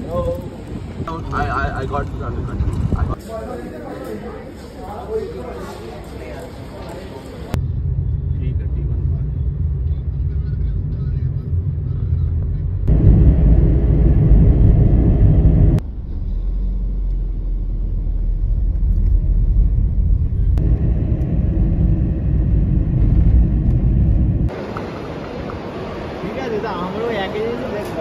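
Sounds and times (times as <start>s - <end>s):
road and engine rumble in car: 7.5s - 24.7s.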